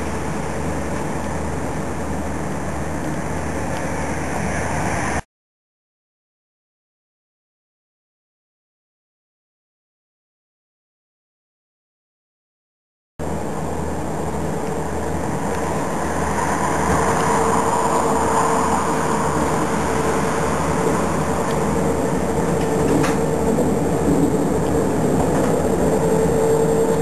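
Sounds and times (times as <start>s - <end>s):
diesel locomotive engine running: 0.0s - 5.2s, 13.2s - 27.0s
steady whine: 0.0s - 5.2s, 13.2s - 27.0s.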